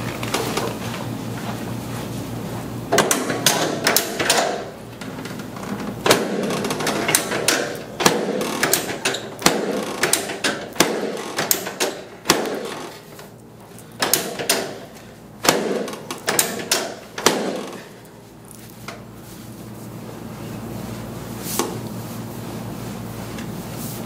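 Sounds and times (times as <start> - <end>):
sharp clicks and knocks: 2.9 - 12.9, 14.0 - 17.9.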